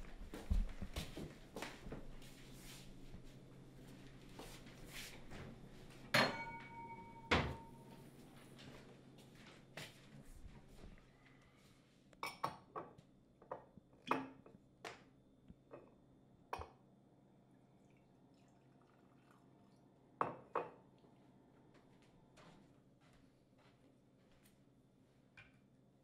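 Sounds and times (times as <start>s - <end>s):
glass and bottle clinking: 6.2s - 7.8s.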